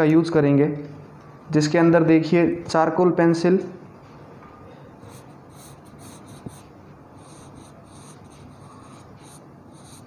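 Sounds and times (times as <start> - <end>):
pencil scratching on paper: 5.0 - 10.0.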